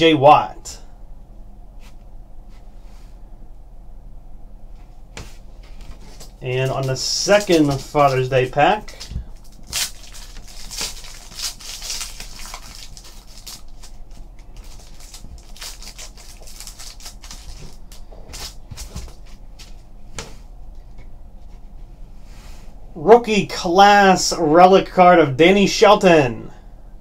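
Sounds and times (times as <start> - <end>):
foil wrapper crinkling and tearing: 5.9 - 19.4.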